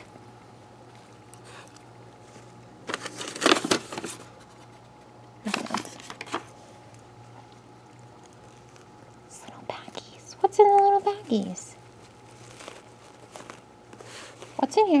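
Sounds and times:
paper envelope rustling: 2.2s - 4.8s, 11.1s - 14.7s.

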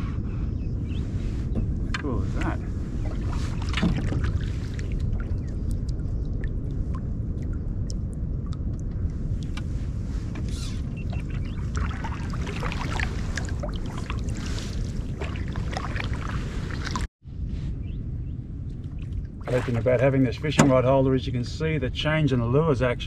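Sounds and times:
steady low rumble: 0.0s - 23.0s
paddle splashing in water: 3.0s - 5.9s, 10.4s - 17.1s, 19.4s - 20.8s.

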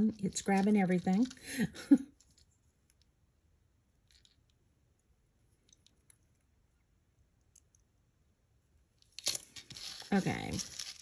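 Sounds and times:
metal jewelry rustling: 0.0s - 3.1s, 9.0s - 11.0s.

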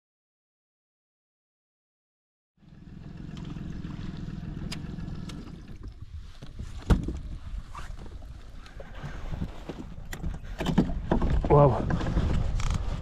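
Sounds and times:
water lapping against boat: 2.6s - 12.4s.

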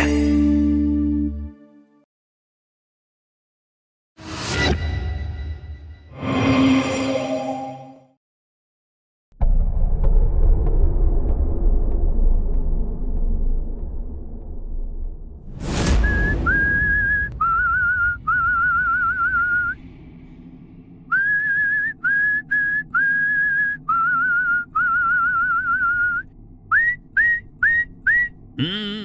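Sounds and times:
sudden swoosh: 9.4s - 23.9s
person whistling a tune: 16.0s - 19.8s, 21.1s - 29.0s.

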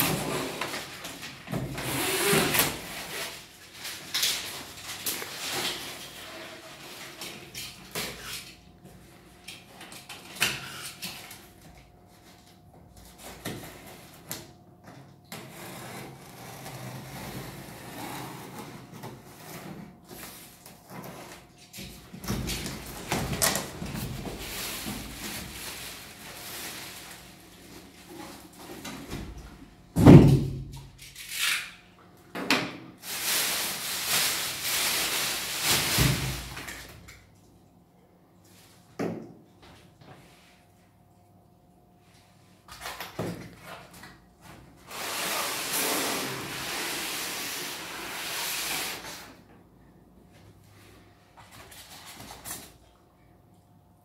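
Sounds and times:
plastic wrap crinkling: 2.1s - 7.3s, 22.6s - 28.5s, 33.0s - 36.8s
utility knife cutting packing tape: 31.1s - 31.8s.

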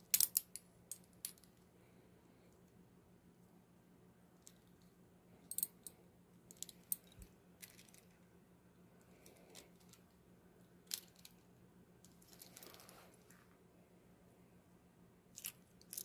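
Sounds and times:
metal handcuff rings clicking: 0.0s - 1.5s, 5.5s - 8.0s
soft rustle: 10.9s - 13.7s.

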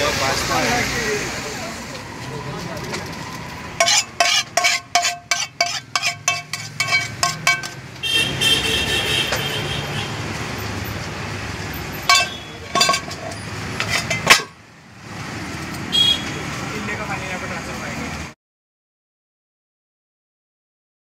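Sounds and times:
street traffic hum: 0.0s - 18.4s
metal spatula clinking on pan: 3.8s - 7.9s, 12.1s - 14.5s.

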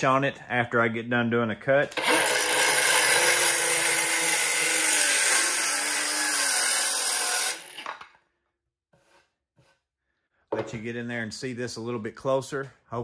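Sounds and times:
circular saw cutting wood: 1.9s - 7.9s
saw blade winding down: 1.9s - 7.9s.

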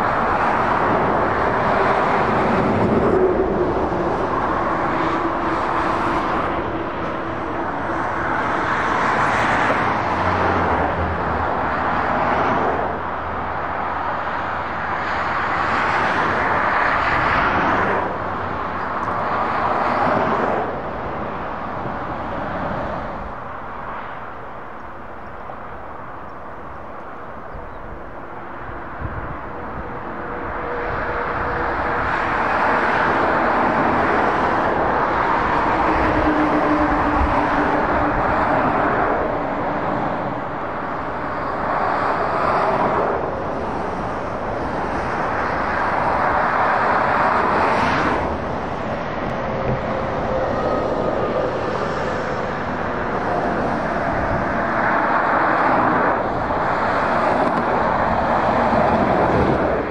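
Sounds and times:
motorway traffic passing: 0.0s - 59.9s.

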